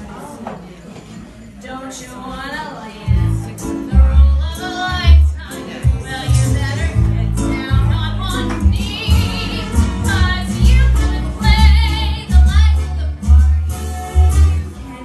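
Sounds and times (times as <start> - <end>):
woman singing into a microphone: 1.8 - 13.4
piano accompaniment: 3.2 - 15.0.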